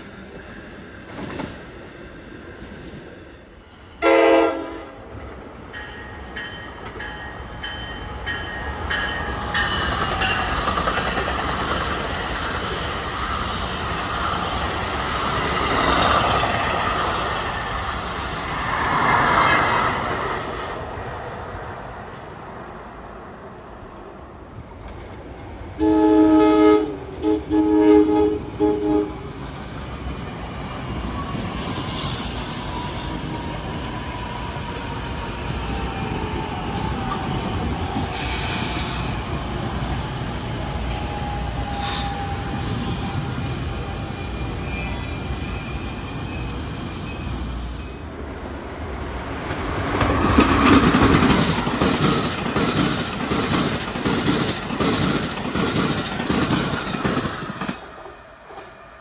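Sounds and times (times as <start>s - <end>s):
train wheels clattering on rails: 1.0s - 1.8s, 5.2s - 18.2s, 49.4s - 58.8s
train horn blasts: 4.0s - 5.1s, 25.8s - 29.2s.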